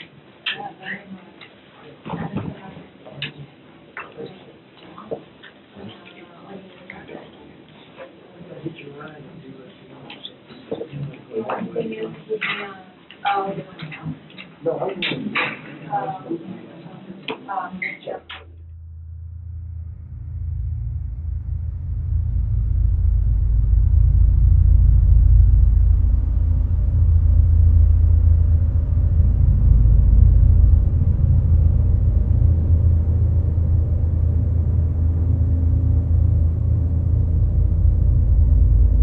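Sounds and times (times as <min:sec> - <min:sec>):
loud low rumble: 0:18.4 - 0:39.0.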